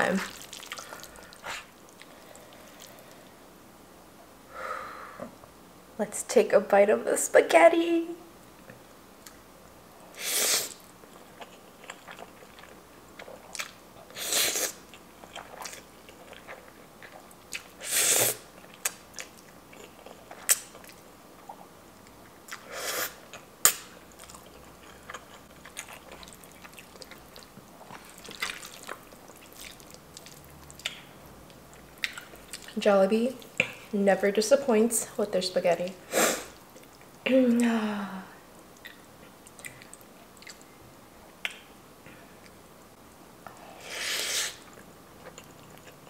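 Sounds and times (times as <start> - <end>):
wet chewing: 0.2 - 3.2, 11.0 - 17.8, 18.5 - 32.8, 38.8 - 40.7, 44.6 - 46.0.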